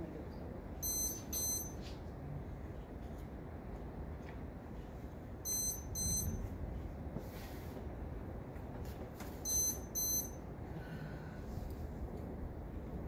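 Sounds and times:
lightning detector double beep: 0.8s - 1.8s, 5.5s - 6.4s, 9.5s - 10.4s.

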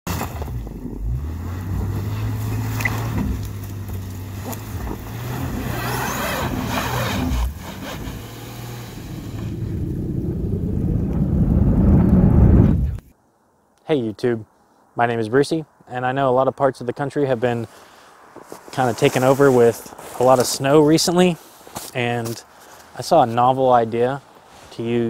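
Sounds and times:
tyres spinning in snow: 0.1s - 12.9s
car engine running under load: 0.1s - 13.0s.

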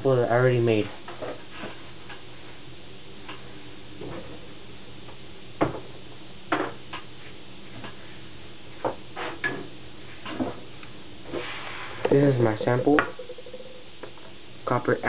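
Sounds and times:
faint steady hum: 9.7s - 15.0s.

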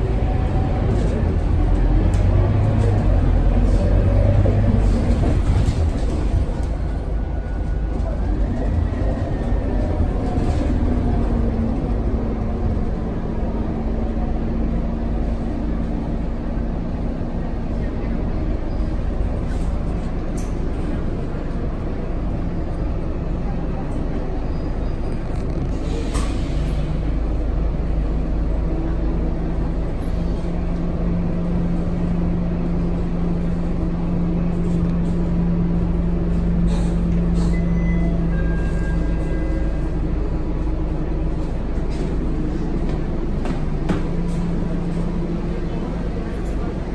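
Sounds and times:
bus diesel engine rumble: 0.0s - 46.9s
road noise: 0.0s - 46.9s.

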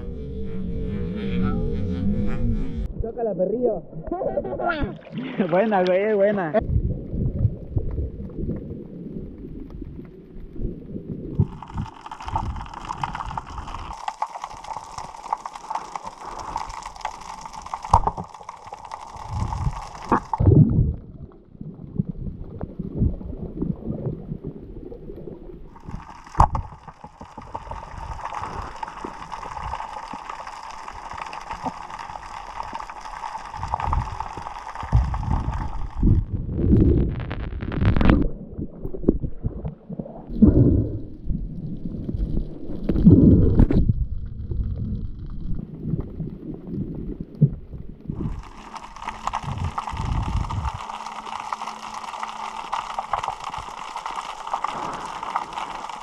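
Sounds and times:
underwater gurgling rumbles: 0.0s - 3.2s, 3.8s - 56.0s
steady high hum: 0.0s - 3.4s.

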